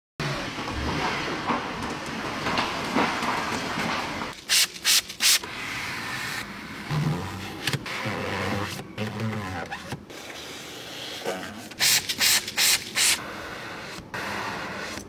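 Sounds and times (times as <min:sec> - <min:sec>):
spray bottle hissing: 0:04.5 - 0:05.4.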